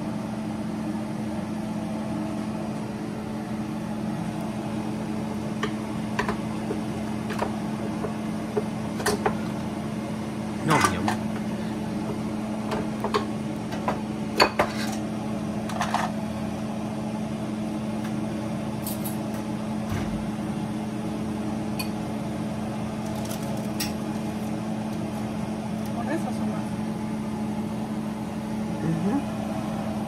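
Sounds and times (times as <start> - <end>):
appliance humming: 0.0 - 30.0
kitchenware clinking: 12.8 - 15.0.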